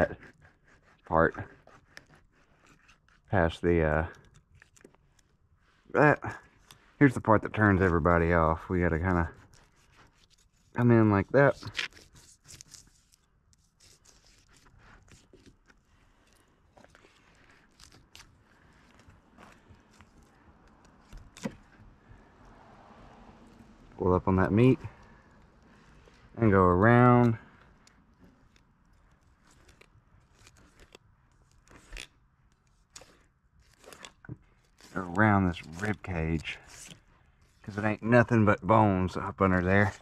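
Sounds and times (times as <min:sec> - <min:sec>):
knife scraping fish scales: 0:00.0 - 0:03.4, 0:09.2 - 0:21.9, 0:27.6 - 0:37.8.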